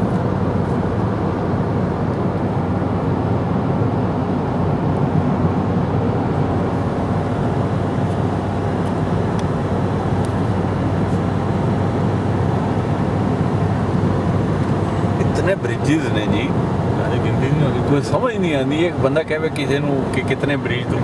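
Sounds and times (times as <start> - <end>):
car road and engine noise: 0.0 - 21.0.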